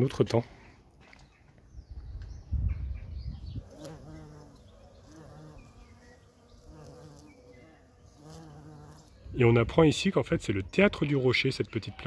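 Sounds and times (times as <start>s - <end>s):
flying insect buzzing: 3.6s - 9.2s.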